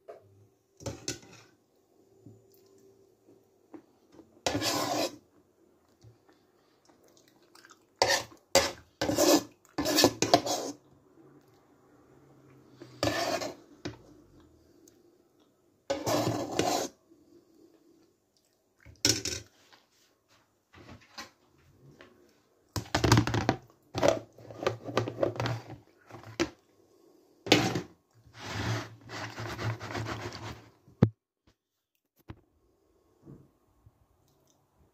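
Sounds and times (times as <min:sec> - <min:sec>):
plastic containers rubbing and scraping: 0:04.4 - 0:05.2, 0:13.0 - 0:14.0, 0:15.9 - 0:17.0, 0:22.8 - 0:26.6, 0:27.5 - 0:30.8.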